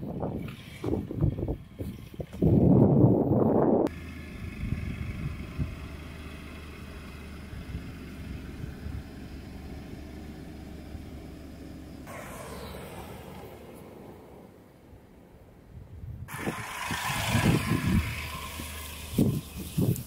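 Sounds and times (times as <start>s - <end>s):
car engine low hum: 0.0s - 20.0s
rushing noise: 12.1s - 14.7s, 16.3s - 20.0s.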